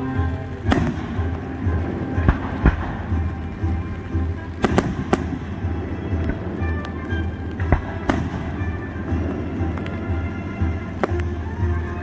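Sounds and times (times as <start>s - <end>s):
fireworks bursting bangs: 0.0s - 12.0s.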